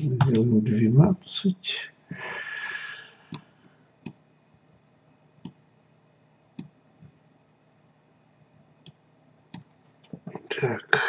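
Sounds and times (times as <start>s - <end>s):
computer mouse clicks: 5.4s - 5.6s, 6.5s - 6.8s, 8.8s - 10.2s.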